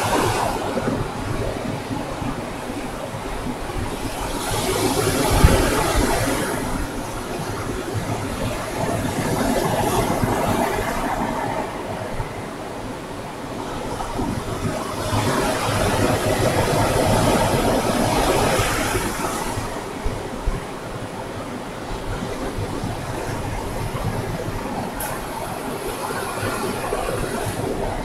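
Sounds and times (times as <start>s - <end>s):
ocean surf breaking on beach: 0.0s - 28.0s.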